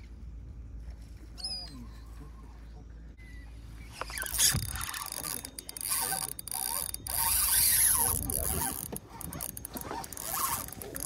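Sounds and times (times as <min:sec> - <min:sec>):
fishing reel drag giving line: 0:04.0 - 0:11.0.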